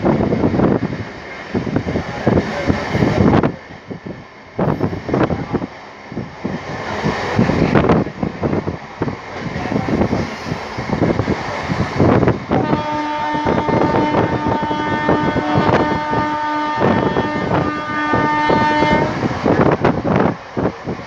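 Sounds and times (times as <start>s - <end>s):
rushing air: 0.0s - 16.2s, 16.8s - 21.0s
steady train horn: 12.5s - 19.6s.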